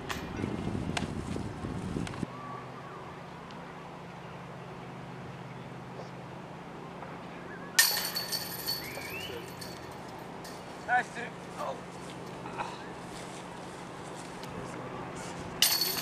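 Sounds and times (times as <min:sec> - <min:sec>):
disc hitting basket chains: 0:07.8 - 0:10.9, 0:15.6 - 0:16.0.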